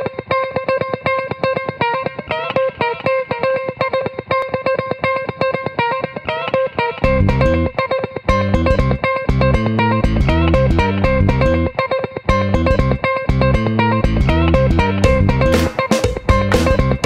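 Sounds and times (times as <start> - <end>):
plucked guitar riff: 0.0 - 17.0
low bass notes: 7.0 - 7.7, 8.3 - 11.7, 12.3 - 17.0.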